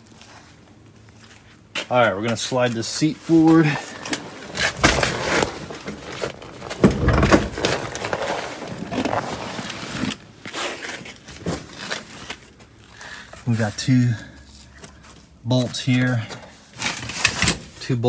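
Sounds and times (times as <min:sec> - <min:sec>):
car seat scraping and clattering: 0:04.0 - 0:10.3
heavy thud: 0:06.5 - 0:08.1.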